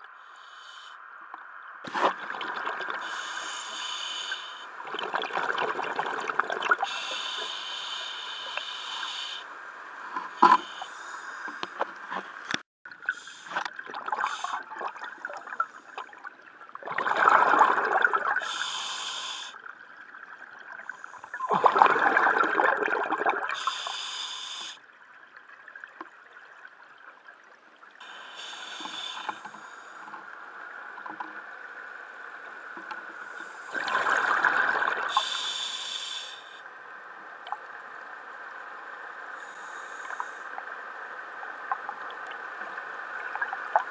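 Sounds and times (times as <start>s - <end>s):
diver breathing through regulator: 0.2s - 1.0s, 3.0s - 4.7s, 6.8s - 9.5s, 18.4s - 19.6s, 23.6s - 24.8s, 28.0s - 30.2s, 35.0s - 36.6s
gurgling exhaled bubbles: 1.8s - 3.1s, 4.8s - 7.0s, 13.6s - 18.5s, 20.4s - 23.6s, 33.7s - 35.2s.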